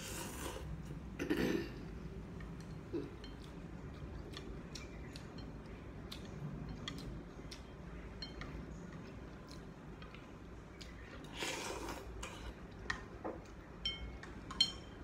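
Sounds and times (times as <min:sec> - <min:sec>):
slurping noodles: 0:00.0 - 0:00.7.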